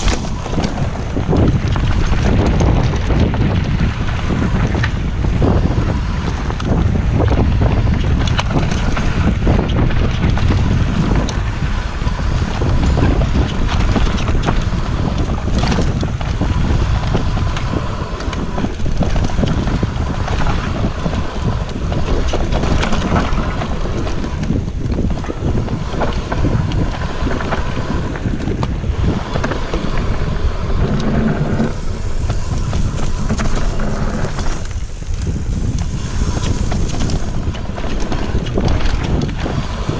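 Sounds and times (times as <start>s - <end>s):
bike rattling over bumps: 0.0s - 39.9s
tyres rolling on dirt trail: 0.0s - 39.9s
wind rushing over microphone: 0.0s - 39.9s.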